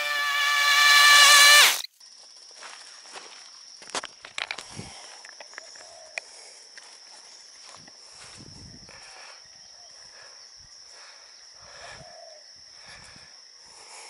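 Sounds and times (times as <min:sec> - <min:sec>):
high-pitched insect chorus: 0:00.0 - 0:14.0
footsteps through grass: 0:02.2 - 0:04.1.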